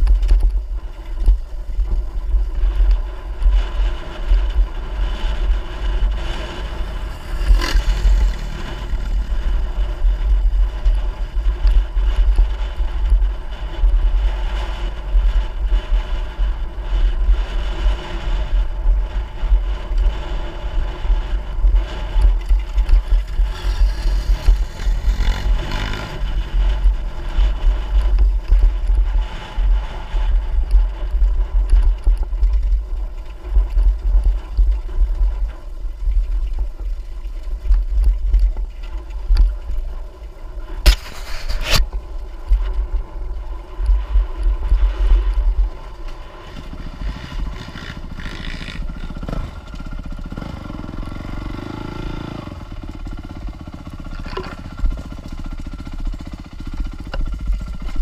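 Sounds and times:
dirt bike engine: 0:00.0 - 0:58.0
low rumble: 0:00.0 - 0:58.0.

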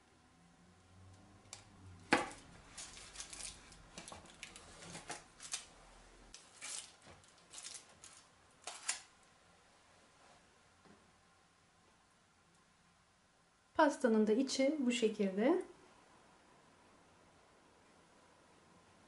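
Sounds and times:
knife cutting through foil: 0:02.7 - 0:03.8, 0:06.4 - 0:09.1.

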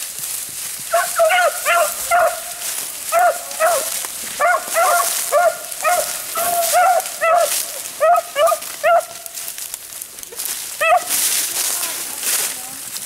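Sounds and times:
hounds barking: 0:00.9 - 0:09.4, 0:10.8 - 0:11.2.

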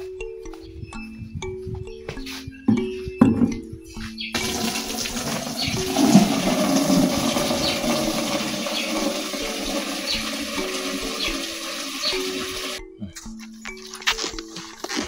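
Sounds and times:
water running from a tap: 0:04.4 - 0:12.8.

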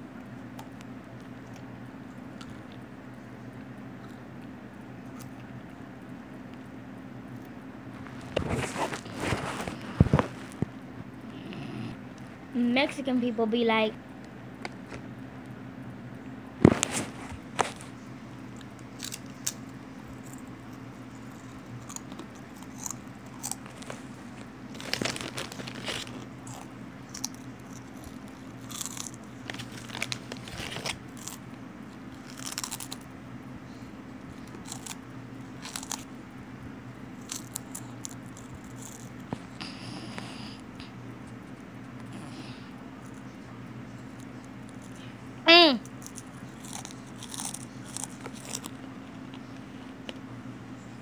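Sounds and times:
faint low hum: 0:00.0 - 0:51.0
chips crunching while chewed: 0:16.7 - 0:33.1, 0:34.3 - 0:36.2, 0:37.1 - 0:40.3, 0:45.9 - 0:50.2.

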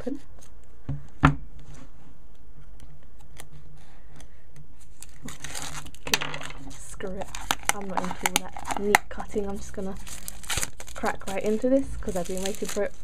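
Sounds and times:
knife slitting plastic wrap: 0:05.2 - 0:06.0, 0:10.0 - 0:13.0.

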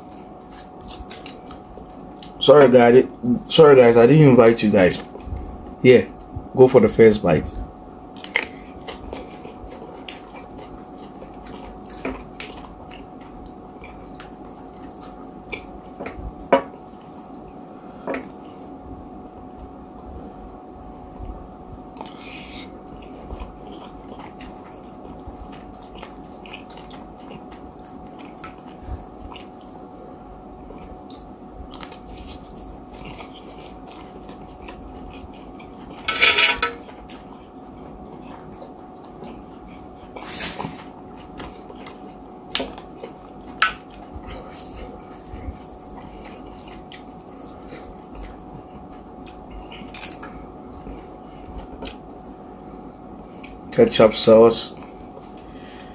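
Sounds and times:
chewing and mouth sounds: 0:00.0 - 0:02.4, 0:07.5 - 0:16.2, 0:21.2 - 0:36.1, 0:36.8 - 0:52.5, 0:53.2 - 0:53.7
faint steady hum: 0:00.0 - 0:55.9.

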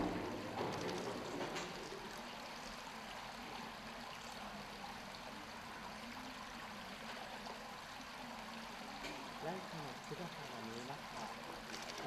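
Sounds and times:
running water: 0:00.0 - 0:12.0
faint clicks: 0:11.6 - 0:12.0.

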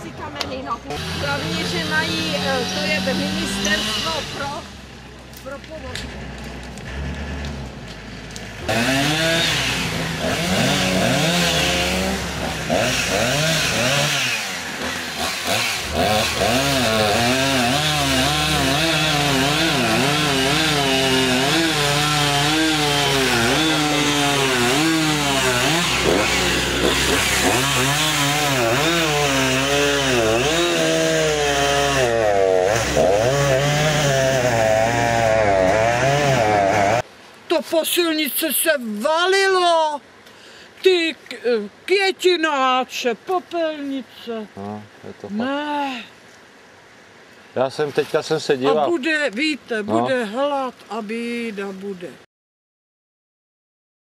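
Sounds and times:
chainsaw cutting wood: 0:00.8 - 0:04.8, 0:05.8 - 0:37.1.

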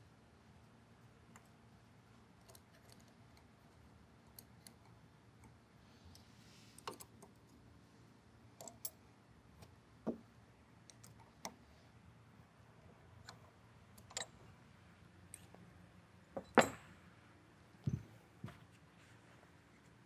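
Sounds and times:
tools and parts clicking: 0:02.4 - 0:03.5, 0:06.8 - 0:07.6, 0:08.6 - 0:09.7, 0:13.2 - 0:14.5, 0:16.3 - 0:17.0.

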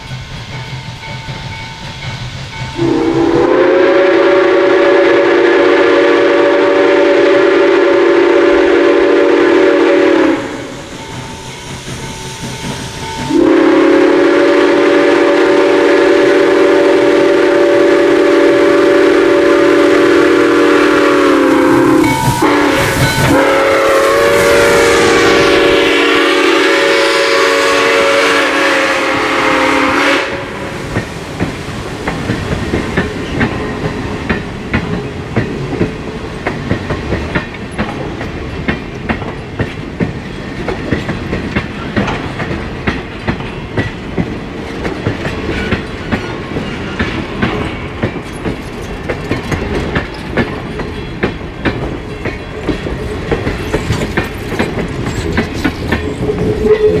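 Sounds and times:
train wheels clacking over rail joints: 0:00.0 - 0:03.8, 0:09.1 - 0:16.1, 0:30.9 - 0:57.0
steam locomotive whistle blasts: 0:02.8 - 0:11.0, 0:13.2 - 0:30.9, 0:56.2 - 0:57.0.

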